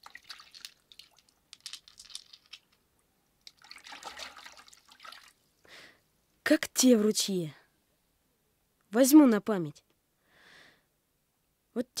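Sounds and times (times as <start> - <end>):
water splashing and dripping: 0.0 - 2.7, 3.4 - 5.4
pebbles clicking: 0.0 - 4.8
wash of water: 3.6 - 5.3.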